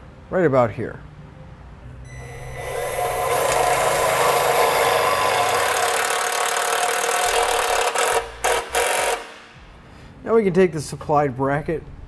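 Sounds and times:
impact driver driving a screw: 3.3s - 9.4s.

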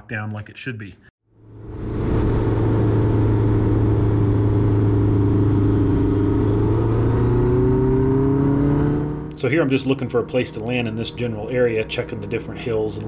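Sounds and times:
light aircraft engine droning: 1.3s - 6.4s.

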